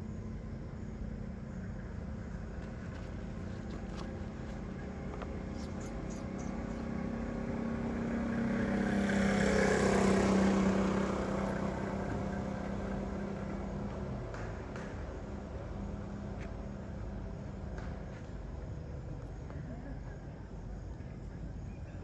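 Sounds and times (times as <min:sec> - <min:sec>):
steady low hum: 0:00.0 - 0:22.0
vehicle driving past: 0:04.6 - 0:18.1.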